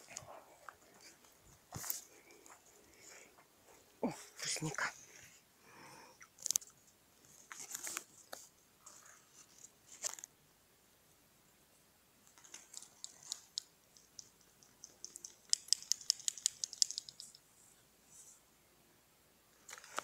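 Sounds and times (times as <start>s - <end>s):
crisp clicks: 12.3s - 17.4s.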